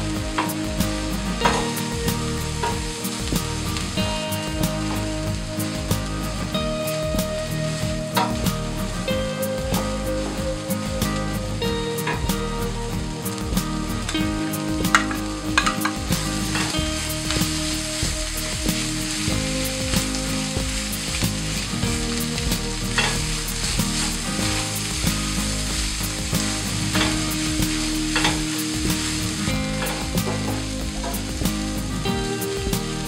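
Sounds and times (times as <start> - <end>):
food sizzling in pan: 0.0 - 33.0.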